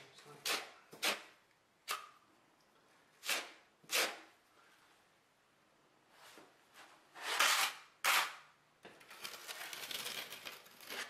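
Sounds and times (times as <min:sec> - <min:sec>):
trowels scraping mortar: 0:07.2 - 0:08.4.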